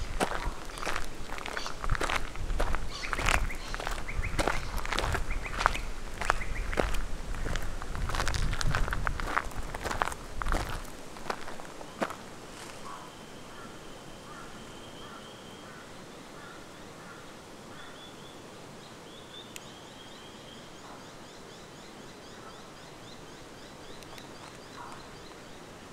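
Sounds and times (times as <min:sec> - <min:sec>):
high bird call: 0:00.0 - 0:01.9, 0:02.9 - 0:06.8
rapid high bird chirps: 0:00.7 - 0:01.9, 0:02.9 - 0:06.8.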